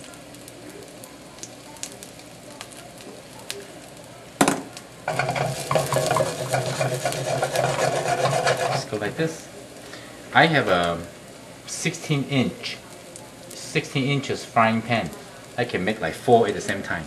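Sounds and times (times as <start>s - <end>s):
oil sizzling and crackling: 0.0s - 17.0s
wok scraping on stove: 5.1s - 9.3s.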